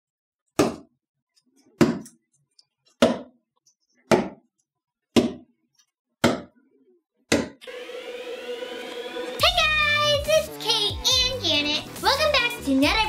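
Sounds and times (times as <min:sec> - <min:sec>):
darts thudding into board: 0:00.6 - 0:00.9, 0:01.8 - 0:02.2, 0:03.0 - 0:03.3.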